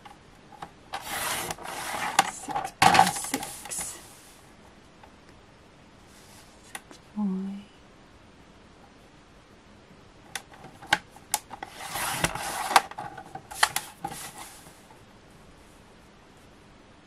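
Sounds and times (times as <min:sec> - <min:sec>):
blade carriage scraping rail: 0:01.0 - 0:03.5.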